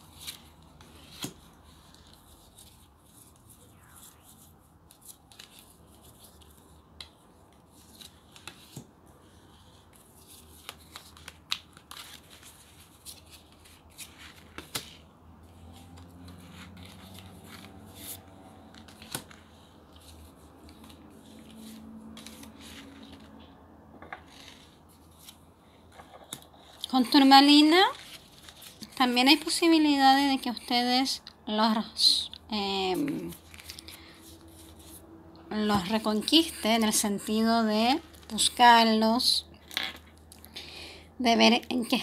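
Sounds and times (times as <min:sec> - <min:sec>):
cards shuffled and dealt: 0:00.0 - 0:15.0, 0:15.6 - 0:29.6, 0:32.9 - 0:35.0.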